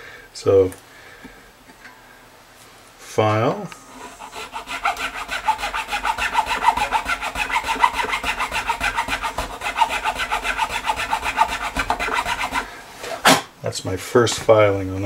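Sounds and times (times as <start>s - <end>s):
file sawing in nut slot: 4.0s - 12.7s.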